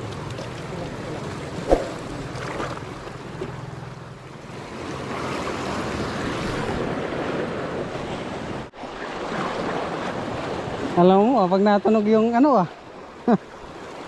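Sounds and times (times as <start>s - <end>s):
wind on microphone: 1.6s - 2.4s.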